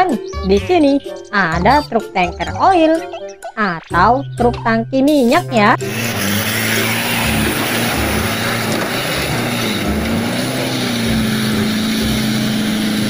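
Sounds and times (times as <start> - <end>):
diesel truck engine droning: 5.1 - 13.0.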